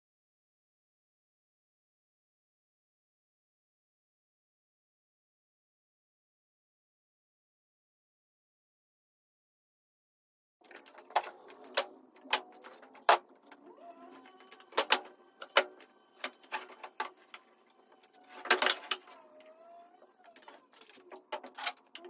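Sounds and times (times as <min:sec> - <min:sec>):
wooden boards knocking and clattering: 0:10.6 - 0:13.6, 0:14.2 - 0:17.4, 0:18.2 - 0:19.2, 0:20.4 - 0:22.0.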